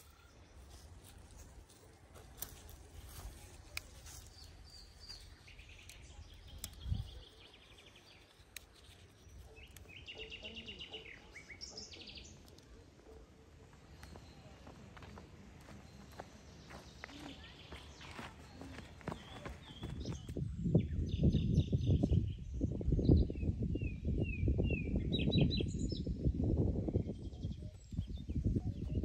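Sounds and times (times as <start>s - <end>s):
faint outdoor ambience: 0.0s - 20.9s.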